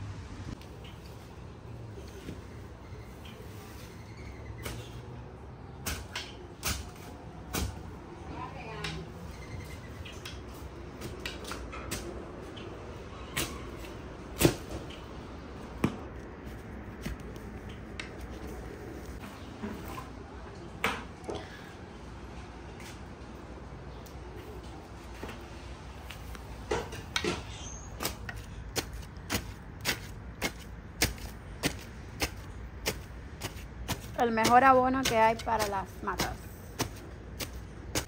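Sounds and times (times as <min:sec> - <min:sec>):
spade chopping into soil: 0:28.0 - 0:38.0.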